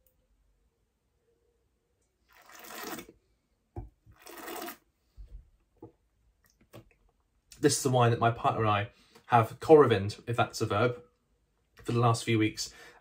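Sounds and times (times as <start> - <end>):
person slurping wine: 2.3 - 3.1, 4.2 - 4.8.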